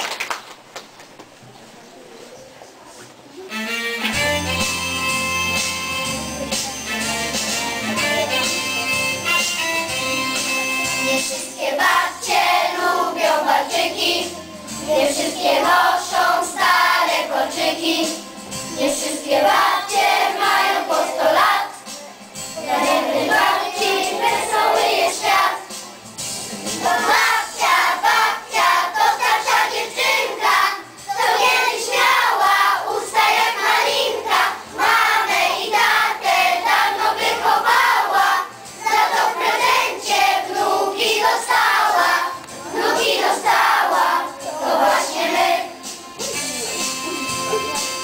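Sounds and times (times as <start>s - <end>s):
children's choir singing: 10.4s - 25.9s, 26.5s - 48.0s.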